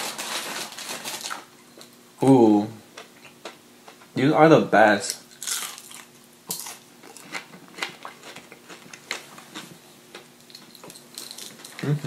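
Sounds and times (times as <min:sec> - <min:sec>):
crunchy chewing of fried food: 0:05.2 - 0:12.0.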